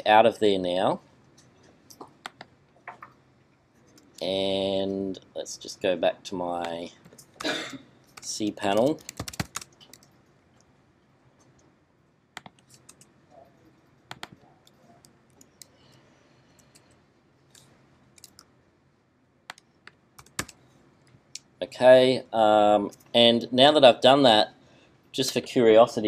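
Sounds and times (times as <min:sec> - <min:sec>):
mouse clicks: 0:12.4 - 0:13.1, 0:19.5 - 0:20.6.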